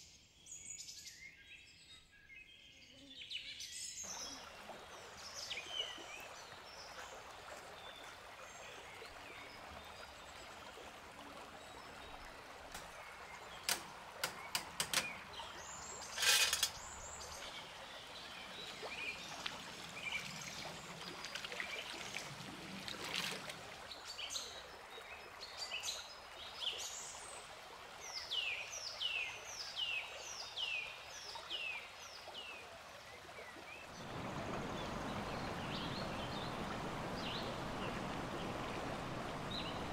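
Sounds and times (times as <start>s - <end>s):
water trickling: 4.1s - 39.9s
birds chirping: 11.4s - 22.1s, 33.8s - 39.9s
sharp clicks: 13.6s - 15.2s.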